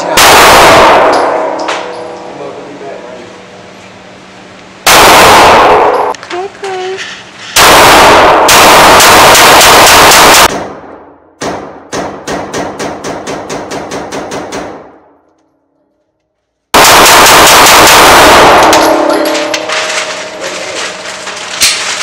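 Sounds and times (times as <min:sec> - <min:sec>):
rapid handgun fire indoors: 0:00.0 - 0:02.2, 0:04.8 - 0:06.2, 0:07.6 - 0:15.3, 0:16.7 - 0:22.0.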